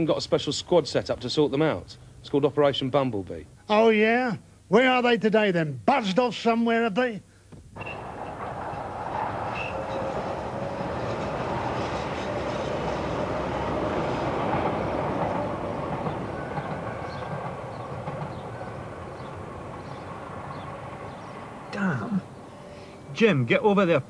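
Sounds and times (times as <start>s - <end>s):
passing vehicle rumble: 7.8s - 23.1s.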